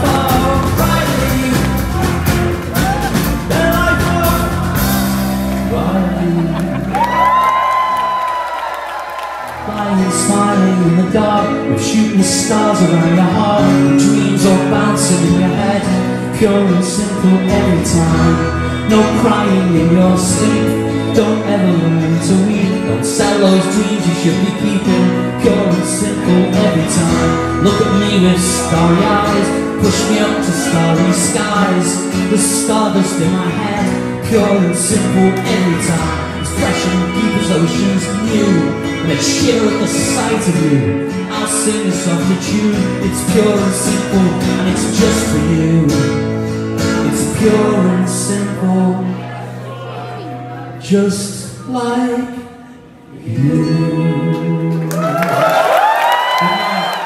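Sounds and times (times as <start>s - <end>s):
steady drum beat: 0.0s - 5.5s
strummed acoustic guitar: 0.0s - 6.9s, 9.6s - 52.5s
electric guitar: 0.0s - 51.7s.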